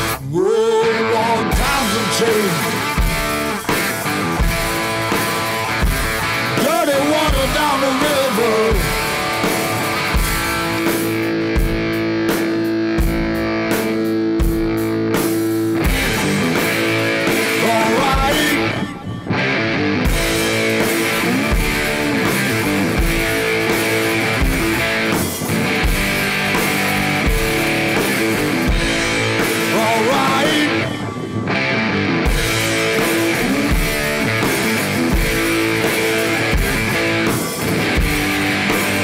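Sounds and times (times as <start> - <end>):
rock music with guitar: 0.0 - 39.0
steady drum beat: 1.5 - 19.3, 20.0 - 39.0.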